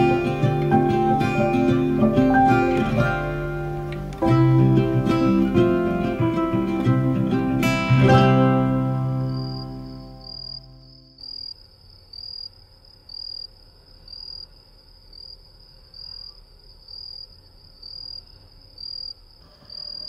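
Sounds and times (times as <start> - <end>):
cricket chirping: 8.2 - 20.0.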